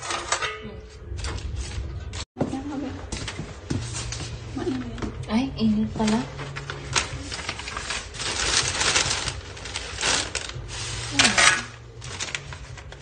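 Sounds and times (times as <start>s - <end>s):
paper and plastic bag crinkling: 5.9s - 13.0s.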